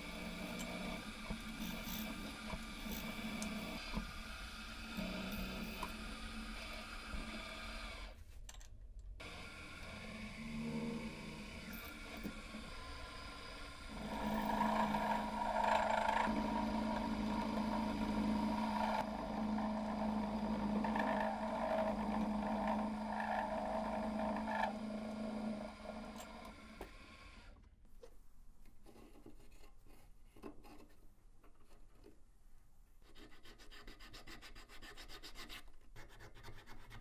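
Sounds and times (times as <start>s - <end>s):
drill press boring into metal: 9.2s - 27.2s.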